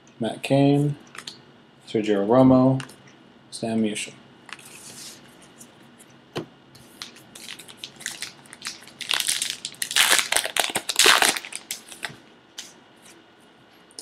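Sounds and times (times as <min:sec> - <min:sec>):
foil wrapper tearing and crinkling: 0:07.0 - 0:12.2.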